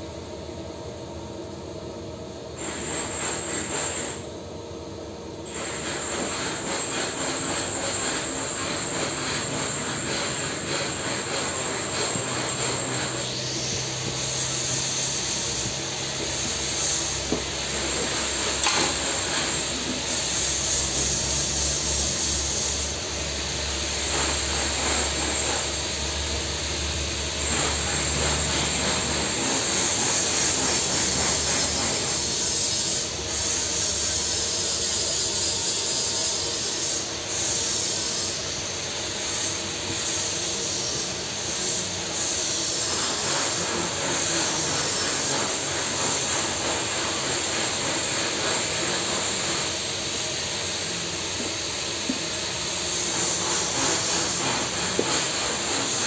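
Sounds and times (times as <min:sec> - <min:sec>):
steady hiss and hum: 0:00.0 - 0:56.0
welding arc burning: 0:05.5 - 0:34.4.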